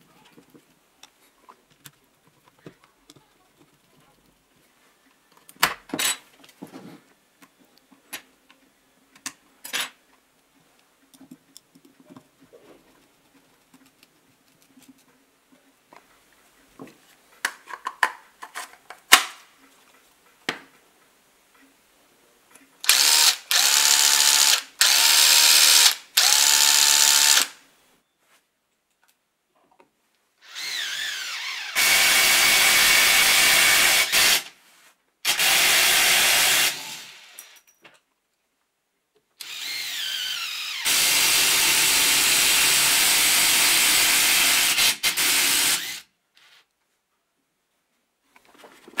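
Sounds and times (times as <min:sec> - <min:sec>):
impact driver motor whine: 0:22.9 - 0:27.5.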